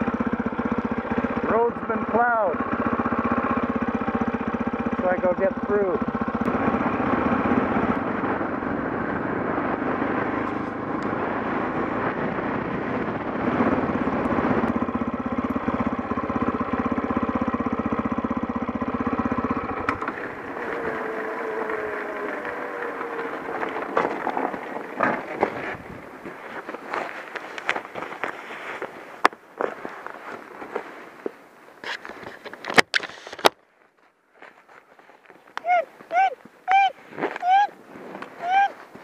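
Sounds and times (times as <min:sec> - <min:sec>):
motorcycle engine running: 0:00.0 - 0:30.9.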